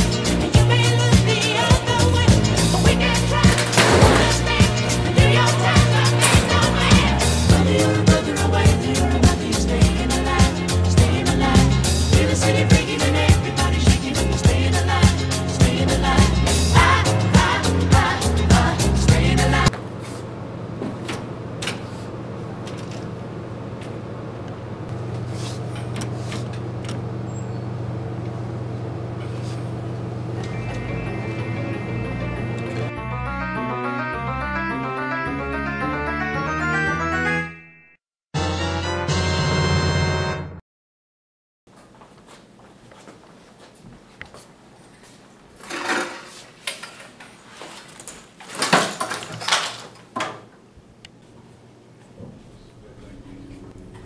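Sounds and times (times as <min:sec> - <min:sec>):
backpack set down: 0:03.6 - 0:04.5
chair scraping: 0:45.6 - 0:50.1
low hum: 0:52.2 - 0:54.0.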